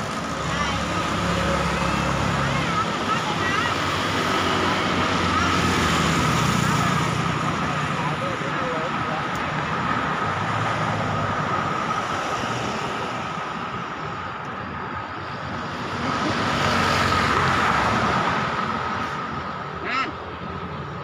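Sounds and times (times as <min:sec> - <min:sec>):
motor traffic noise: 0:00.0 - 0:21.0
vehicle passing: 0:15.5 - 0:21.0.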